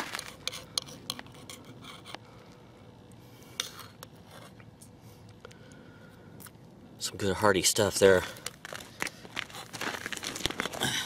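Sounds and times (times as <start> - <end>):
spoon scraping metal cup: 0.0 - 2.2.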